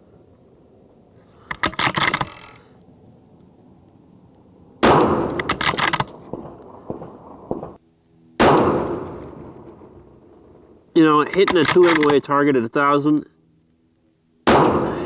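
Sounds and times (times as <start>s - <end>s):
rifle bolt clacking: 1.5s - 2.6s, 5.3s - 6.4s, 11.2s - 12.2s
rifle shots echoing: 4.8s - 7.8s, 8.4s - 10.8s, 14.4s - 15.0s.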